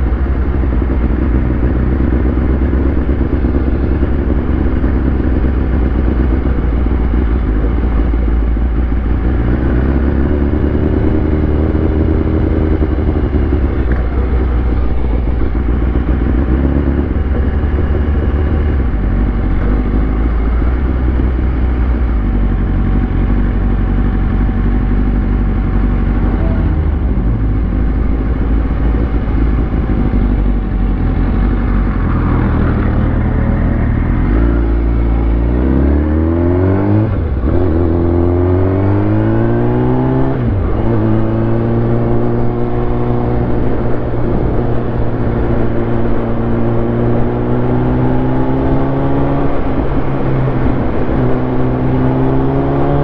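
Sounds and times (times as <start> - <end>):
motorcycle engine running: 0.0 - 53.0.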